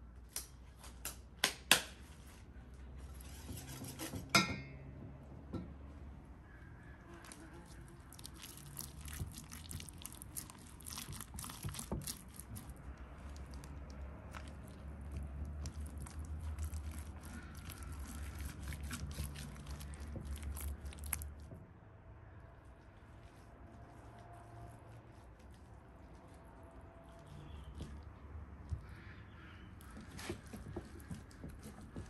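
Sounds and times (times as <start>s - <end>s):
hands squelching paste on meat: 6.4s - 21.5s, 22.4s - 32.0s.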